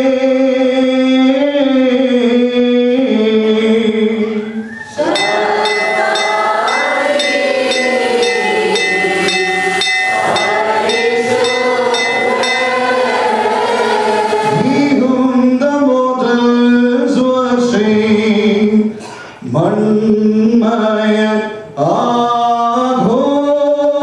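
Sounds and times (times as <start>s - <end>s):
group of voices chanting: 4.7s - 15.0s
small metal bells jingling: 5.1s - 13.3s.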